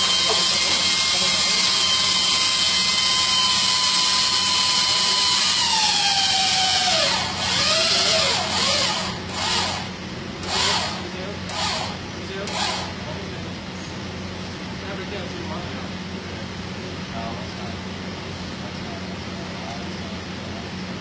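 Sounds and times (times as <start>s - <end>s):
electric motor whining: 0.0s - 13.0s
voices: 10.4s - 21.0s.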